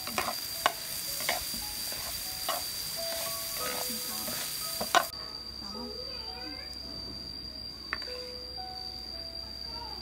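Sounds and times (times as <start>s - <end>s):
metal spatula scraping a pan: 0.0s - 5.1s
vegetables sizzling in a frying pan: 0.0s - 6.7s.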